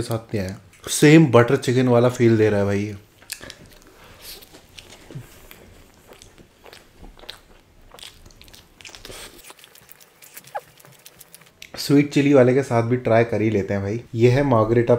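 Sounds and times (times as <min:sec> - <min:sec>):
person chewing food: 0:03.2 - 0:11.8.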